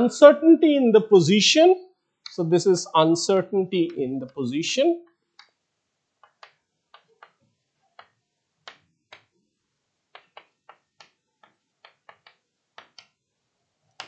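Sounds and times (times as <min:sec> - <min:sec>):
chalk tapping on chalkboard: 0:06.2 - 0:07.4, 0:10.2 - 0:13.1.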